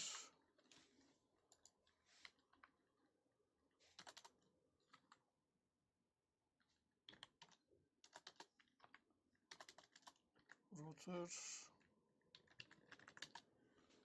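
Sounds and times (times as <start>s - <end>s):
computer keyboard typing: 1.5s - 2.8s, 3.9s - 5.2s, 7.0s - 10.6s, 12.2s - 13.6s.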